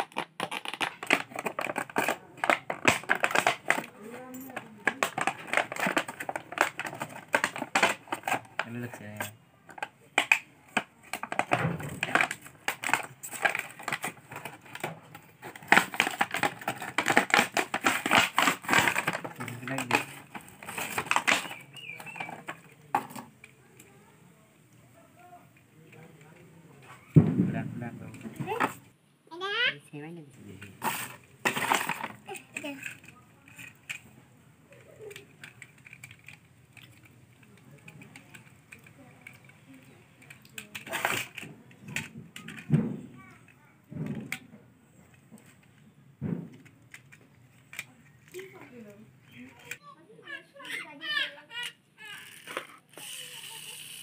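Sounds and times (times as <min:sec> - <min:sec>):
plastic packaging crackling: 0:00.0 - 0:23.1
plastic toy tractors clicking: 0:00.0 - 0:27.1, 0:28.0 - 0:28.8, 0:30.6 - 0:44.5, 0:46.5 - 0:54.0.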